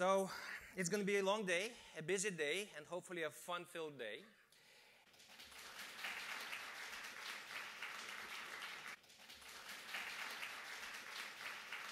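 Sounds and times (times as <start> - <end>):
audience applauding: 5.1 - 11.9.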